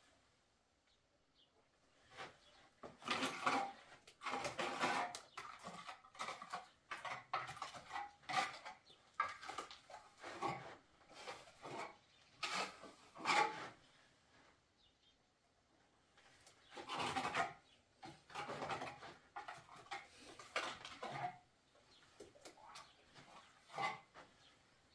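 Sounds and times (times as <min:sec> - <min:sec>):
trowel scraping wet plaster: 0:02.8 - 0:13.8, 0:16.6 - 0:21.5, 0:22.4 - 0:24.2.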